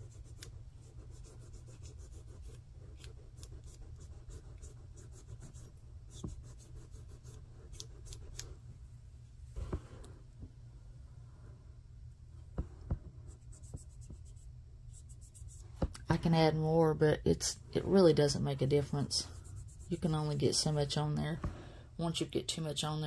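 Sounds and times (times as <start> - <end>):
sponge applicator rubbing nail: 0.0 - 8.6, 13.3 - 15.9, 19.0 - 20.4.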